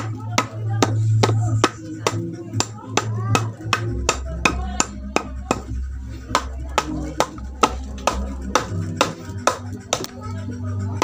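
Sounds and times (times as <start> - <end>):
background music: 0.0 - 11.0
hammer striking wood: 6.3 - 10.1.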